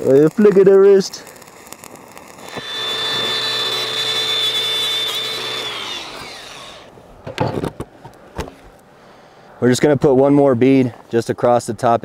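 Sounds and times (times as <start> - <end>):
angle grinder spinning: 2.4 - 6.9.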